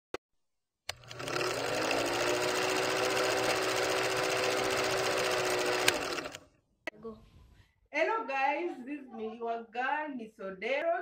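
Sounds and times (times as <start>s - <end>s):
film projector clattering: 0.9s - 6.4s.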